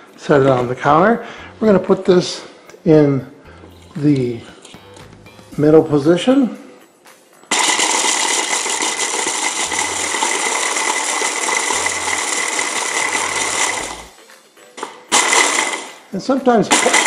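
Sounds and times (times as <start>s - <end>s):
stick blender motor whine: 7.6s - 14.2s.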